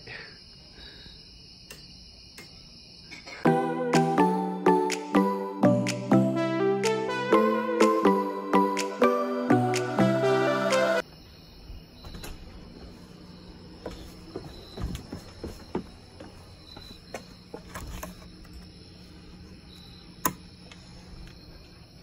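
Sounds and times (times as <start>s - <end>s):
crickets chirping: 0.0s - 3.5s, 11.0s - 22.0s
background music: 3.4s - 11.0s.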